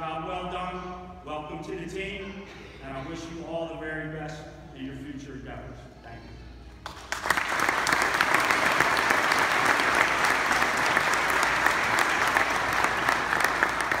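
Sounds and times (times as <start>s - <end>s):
audience applauding: 6.8s - 14.0s.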